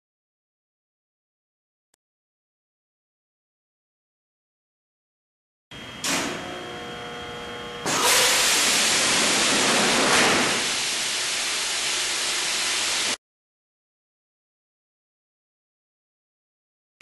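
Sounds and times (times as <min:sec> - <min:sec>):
loud rushing hiss: 0:08.0 - 0:13.2.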